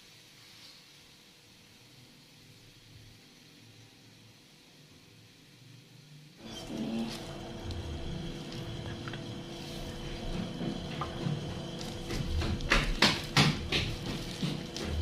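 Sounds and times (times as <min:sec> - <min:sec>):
steady low hum: 0:06.3 - 0:15.0.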